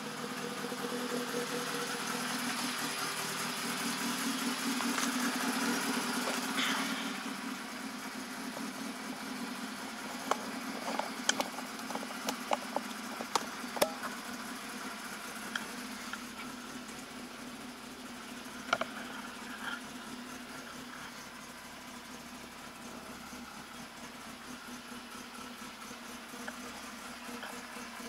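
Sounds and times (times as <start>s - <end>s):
car engine running: 0.0s - 28.0s
sharp clicks and knocks: 10.2s - 14.2s.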